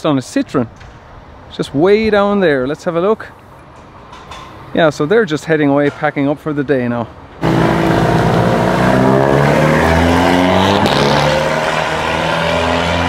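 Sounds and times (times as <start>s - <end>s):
race car engine at low revs: 7.4s - 13.0s.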